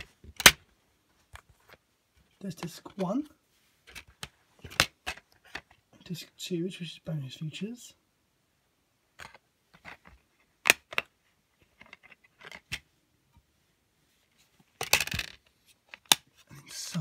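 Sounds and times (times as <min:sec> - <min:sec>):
plastic case clicks and rattles: 0:14.8 - 0:16.2.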